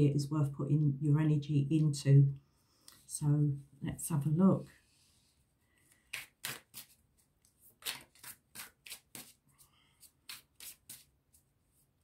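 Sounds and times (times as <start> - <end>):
cards being shuffled: 5.8 - 11.4.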